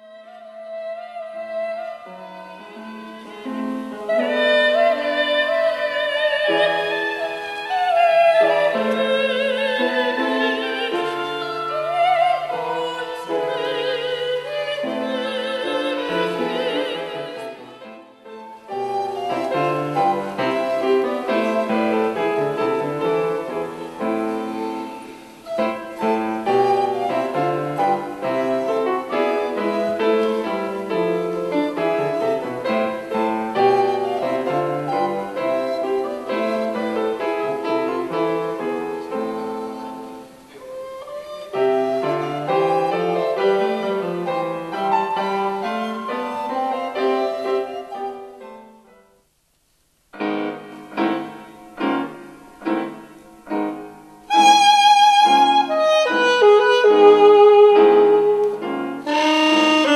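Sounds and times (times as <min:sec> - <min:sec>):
piano playing: 0:00.0 - 0:49.2, 0:50.1 - 0:59.9
operatic singing with vibrato: 0:04.1 - 0:18.2.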